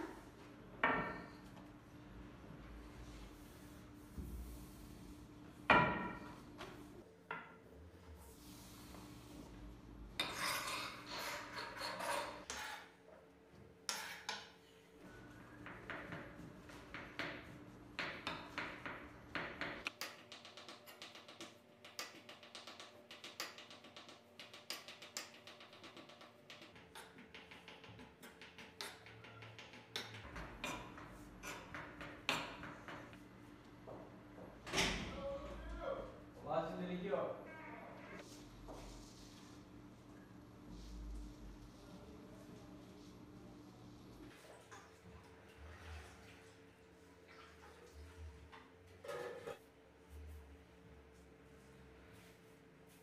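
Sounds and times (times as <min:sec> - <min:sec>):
knife scraping a worktop: 0:10.2 - 0:13.0, 0:13.9 - 0:14.6, 0:49.0 - 0:49.6.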